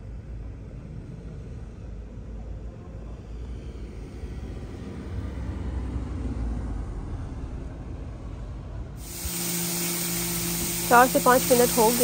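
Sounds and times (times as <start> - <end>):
car driving on snowy street: 0.0 - 9.0.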